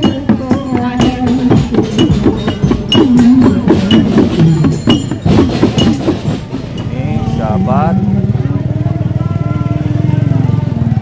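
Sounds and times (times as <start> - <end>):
hand drums and bamboo percussion: 0.0 - 11.0
wavering melody line: 6.7 - 9.7.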